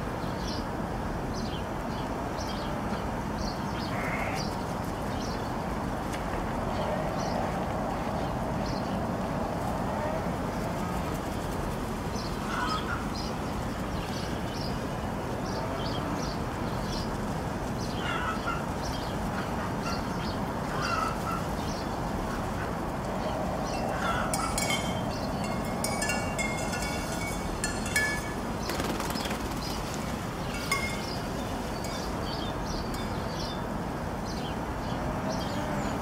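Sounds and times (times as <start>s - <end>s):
steady rushing noise: 16.2s - 34.7s.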